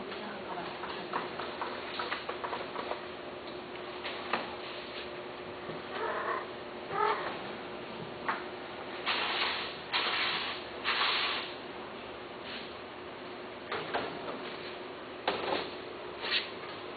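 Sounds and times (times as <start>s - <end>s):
cat meowing: 5.9s - 7.4s.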